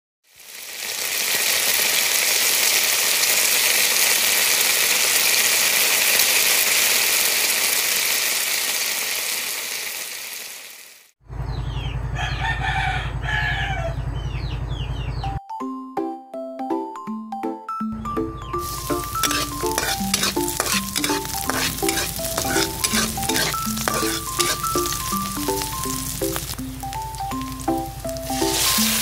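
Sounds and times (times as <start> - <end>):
loud hissing sizzle: 0.3 - 11.2, 18.6 - 29.0
rooster crowing: 12.0 - 14.3.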